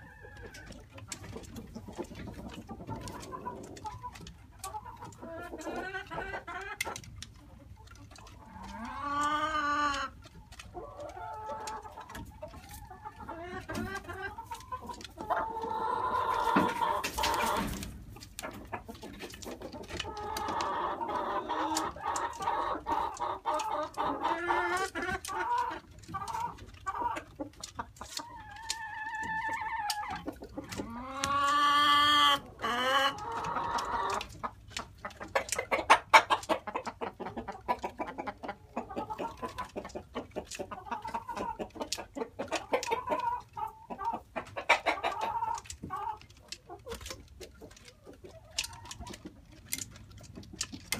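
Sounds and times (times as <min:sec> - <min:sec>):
chickens clucking: 0:00.0 - 0:50.9.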